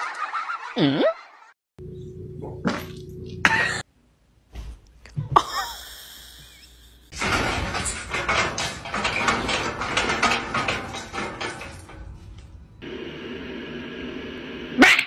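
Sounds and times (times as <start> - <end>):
metal gate rattling and clanking: 7.1 - 12.9.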